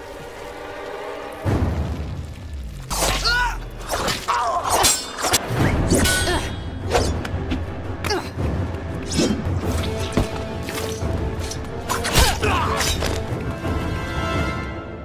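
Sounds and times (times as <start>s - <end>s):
swords clashing: 3.9s - 7.2s.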